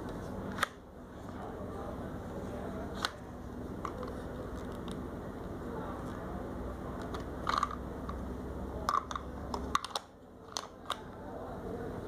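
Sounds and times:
plastic toy clicks: 8.9 - 11.0.

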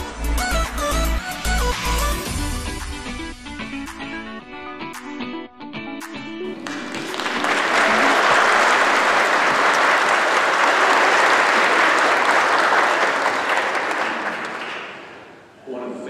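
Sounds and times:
congregation applauding: 6.5 - 15.6.

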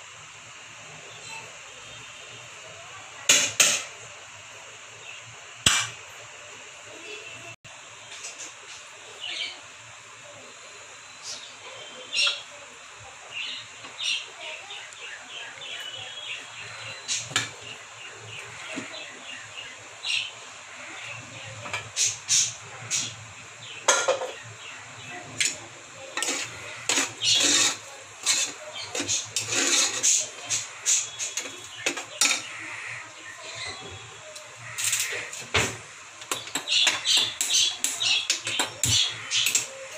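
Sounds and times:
metal lid clinking and scraping: 26.2 - 30.2
spoon scraping metal pot: 26.2 - 32.6.

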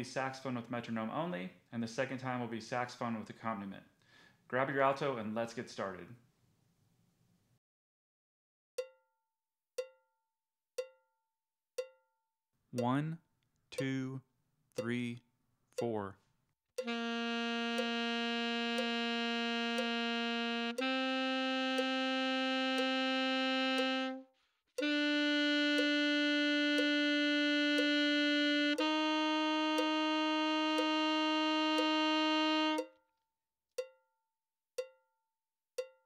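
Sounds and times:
player taking breath: 4.0 - 4.4
metronome clicking: 12.8 - 13.2, 13.8 - 14.2, 14.8 - 15.2, 15.8 - 16.1, 16.8 - 17.0, 17.7 - 18.0, 18.7 - 19.0, 19.7 - 20.0, 21.7 - 24.1, 25.6 - 29.0, 29.6 - 33.0, 33.8 - 34.0, 34.8 - 35.0, 35.8 - 36.0
alto saxophone long tones: 16.8 - 32.9.

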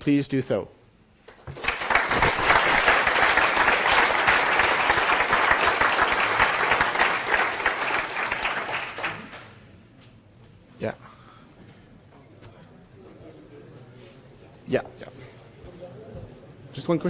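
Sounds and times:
audience applauding: 1.3 - 9.6.

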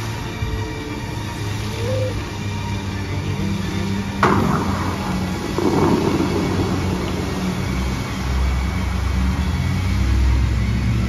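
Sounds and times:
water jets rushing: 1.1 - 11.0
rush of noise: 3.4 - 11.0.

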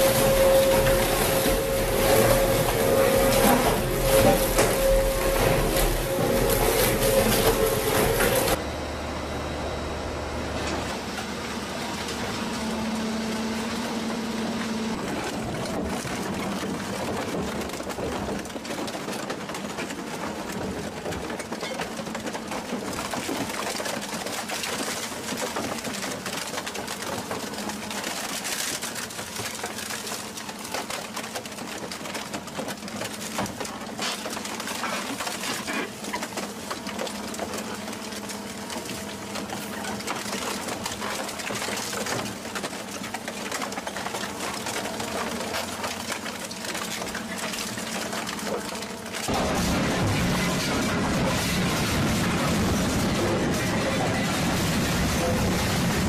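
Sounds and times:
machine rattling: 0.0 - 8.6, 14.9 - 56.0
low hum: 0.0 - 16.3.

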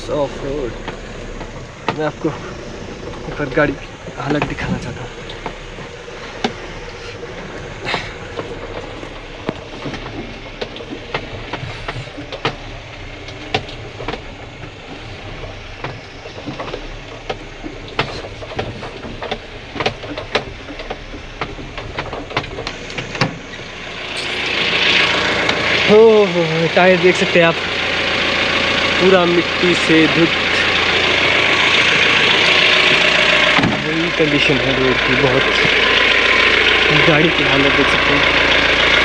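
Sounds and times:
diesel engine running low: 0.0 - 39.0
sharp irregular clicks and knocks: 0.0 - 39.0.

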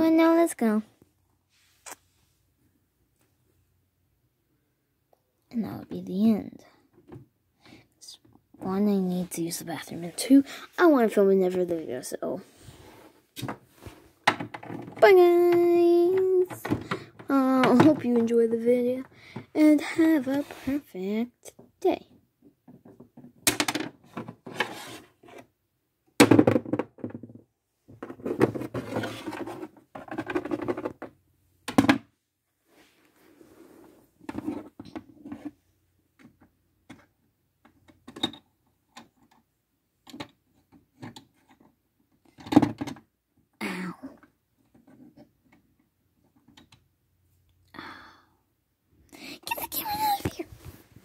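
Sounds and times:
plastic toys knocking and clicking: 14.2 - 18.4, 22.4 - 24.5, 26.2 - 32.1, 36.2 - 43.1.

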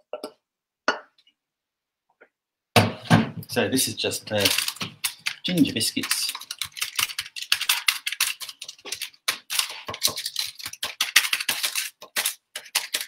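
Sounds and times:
spoon scraping biscuit crumbs: 4.1 - 13.0.

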